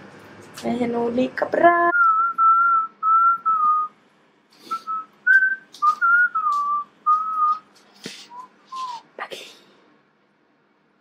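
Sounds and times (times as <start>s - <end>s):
person whistling: 2.0s - 4.0s, 4.6s - 9.1s.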